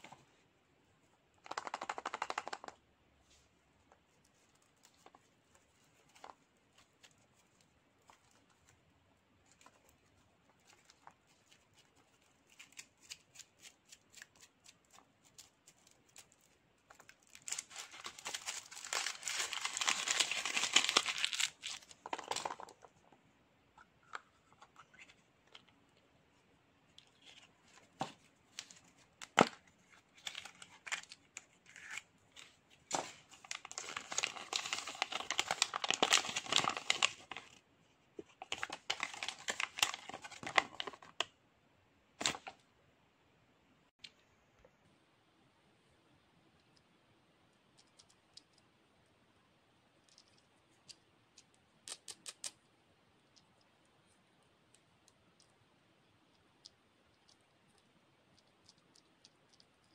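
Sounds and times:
foil wrapping crinkling and tearing: 17.1s - 21.9s, 32.9s - 37.5s, 38.5s - 41.0s
paper rustling: 27.2s - 37.6s, 38.4s - 41.2s.

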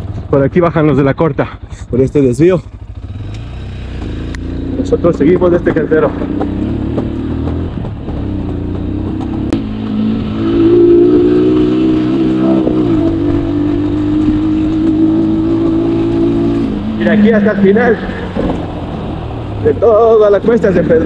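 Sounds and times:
small motorcycle engine revving: 2.8s - 19.5s.

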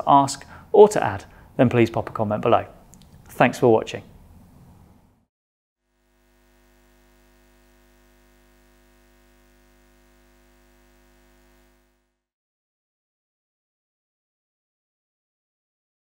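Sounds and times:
faint steady hum: 5.9s - 12.2s.

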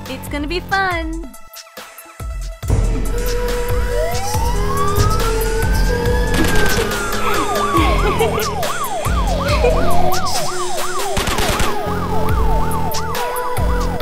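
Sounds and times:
electronic music with steady beat: 2.2s - 14.0s
siren-like wail: 3.1s - 14.0s.

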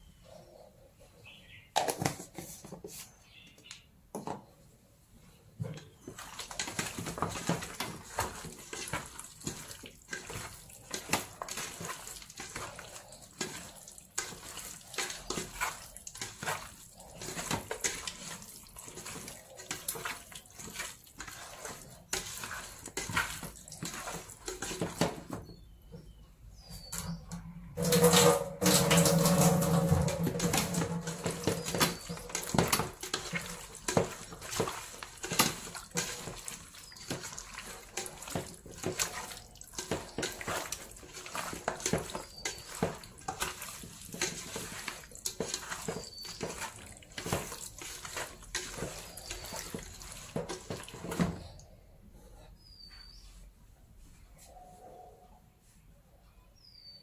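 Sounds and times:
wet squelching and slapping by hand: 6.0s - 25.2s, 28.6s - 51.5s.

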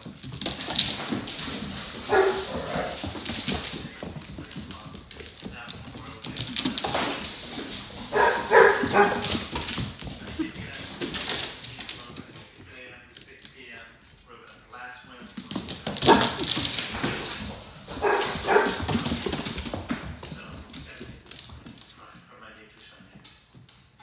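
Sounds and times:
claws scrabbling on wooden floor: 0.0s - 24.0s
puppies barking and yipping: 2.0s - 3.2s, 8.1s - 9.6s, 17.9s - 19.1s.

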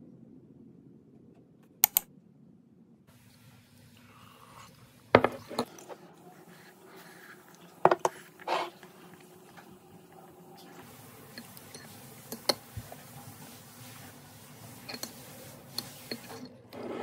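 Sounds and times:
mug knocking on desk: 5.2s - 5.4s.

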